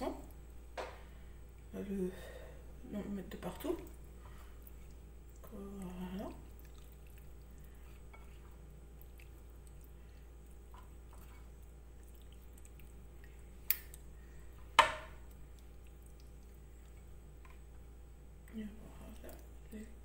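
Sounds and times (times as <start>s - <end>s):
wet squishing: 3.4s - 18.1s.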